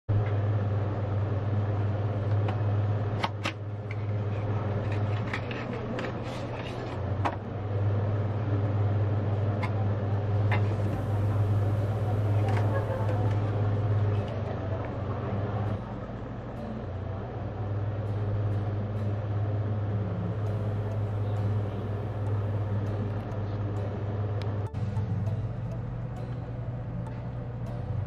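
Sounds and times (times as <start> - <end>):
low hum: 0.1 - 28.0
card and paper rustling: 3.9 - 7.0.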